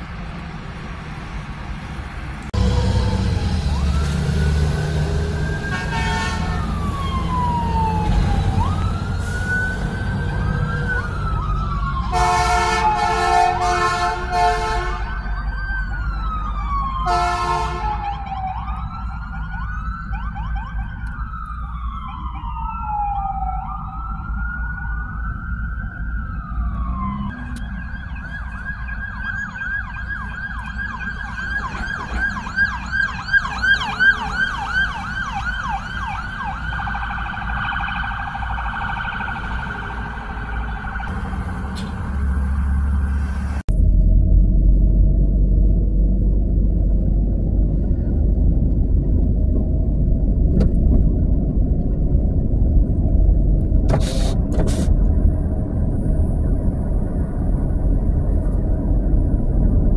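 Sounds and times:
road traffic rumble: 0.0s - 59.9s
emergency siren wailing: 2.6s - 46.2s
loud horn blasts: 5.6s - 6.7s, 12.1s - 15.2s, 17.0s - 18.0s.

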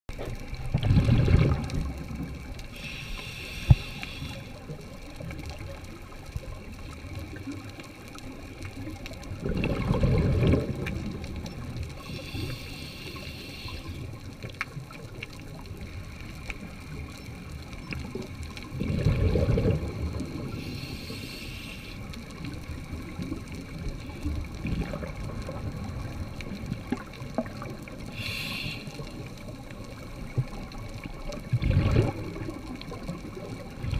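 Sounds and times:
exhaled bubbles rumbling underwater: 0.1s - 33.9s
regulator inhale hiss: 2.7s - 4.8s, 12.0s - 14.2s, 20.3s - 22.2s, 28.0s - 29.3s.

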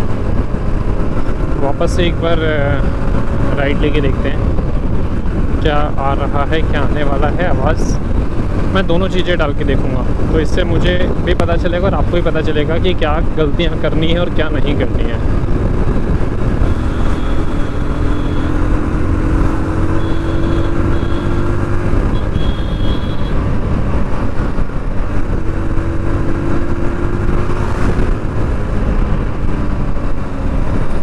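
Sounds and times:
motorcycle engine running: 0.0s - 9.3s, 9.9s - 31.0s
wind buffeting microphone: 2.7s - 9.0s, 14.3s - 18.0s, 23.3s - 31.0s.

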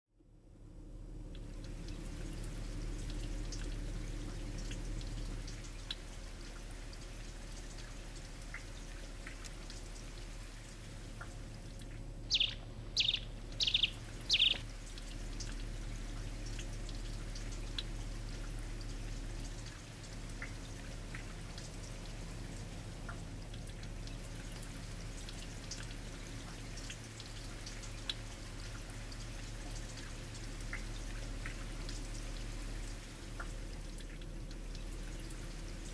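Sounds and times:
bird high calls: 12.2s - 14.7s
faint bird chirps: 12.2s - 14.7s
floodwater rushing: 12.2s - 14.9s.

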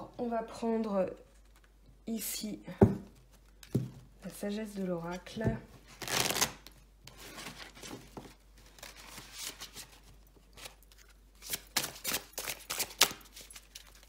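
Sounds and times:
cards sliding and rustling: 7.1s - 14.0s.

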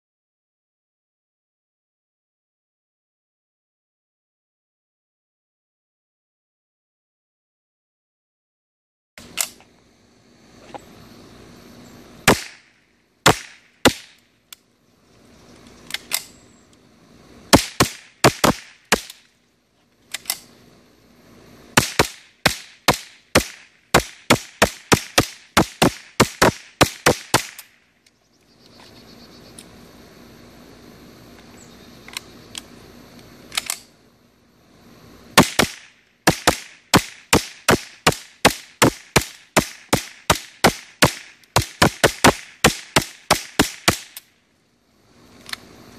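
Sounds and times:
rifle shots: 12.2s - 14.2s, 17.5s - 19.3s, 21.8s - 27.8s, 35.4s - 44.2s.

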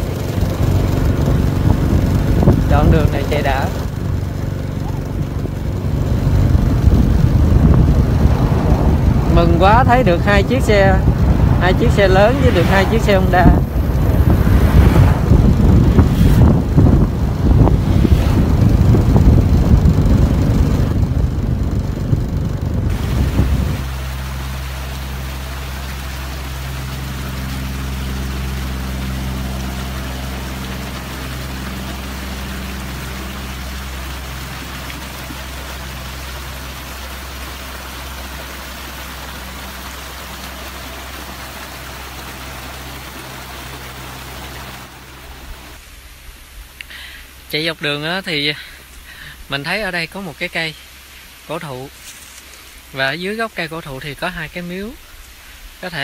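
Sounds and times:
vehicle engine idling: 0.0s - 56.0s
wind buffeting microphone: 0.1s - 24.1s.

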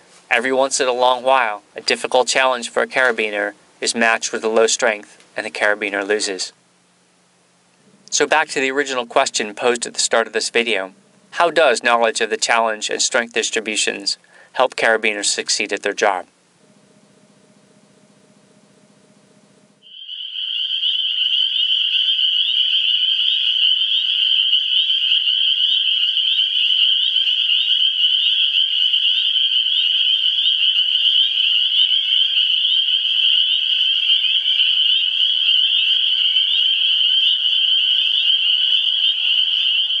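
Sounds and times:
chorus of frogs calling: 7.9s - 14.7s, 17.3s - 40.0s.

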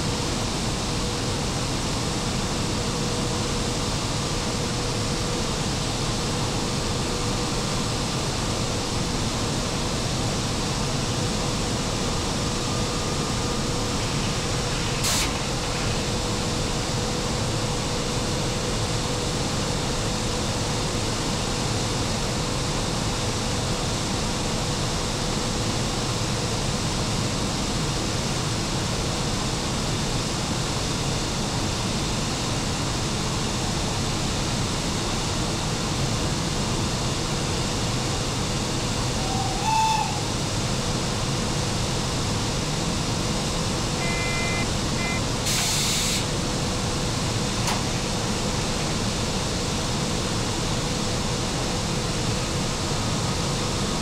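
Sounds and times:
cooling blowers rushing: 0.1s - 25.0s.

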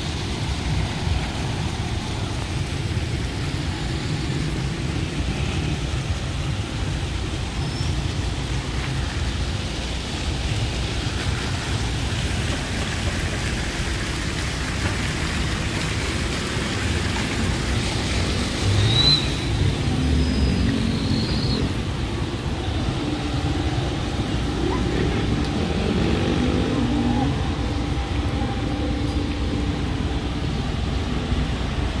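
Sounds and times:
cars driving past: 14.6s - 32.0s.

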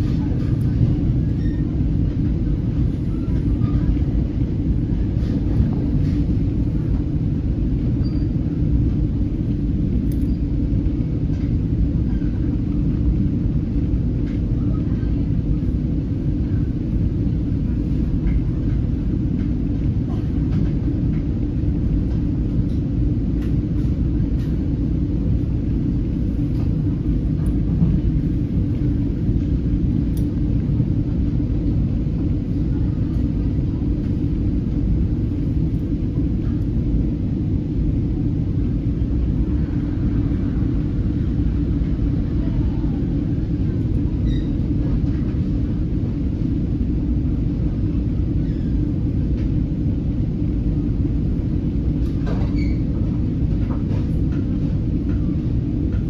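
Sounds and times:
train coach rumbling: 0.0s - 56.0s.

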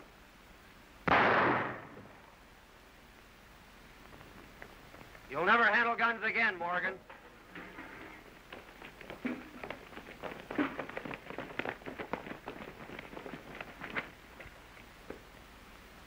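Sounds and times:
hurried footsteps: 7.1s - 15.3s.

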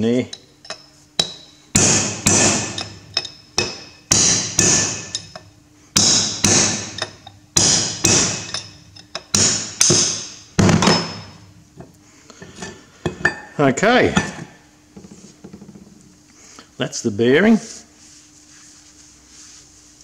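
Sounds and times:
hammer striking steel punch: 1.2s - 5.4s, 6.0s - 11.4s.

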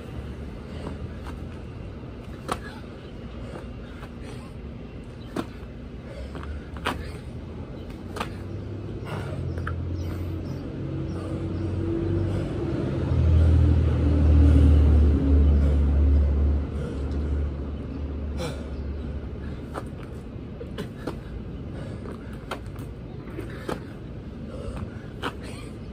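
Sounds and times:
heavy vehicle rumbling past: 8.4s - 19.6s.

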